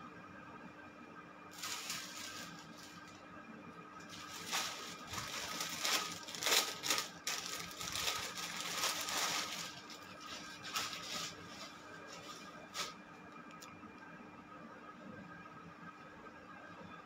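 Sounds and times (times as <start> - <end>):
plastic bag crinkling: 1.5 - 3.2, 4.1 - 13.0
cloth rustling: 1.6 - 3.1, 4.1 - 13.0.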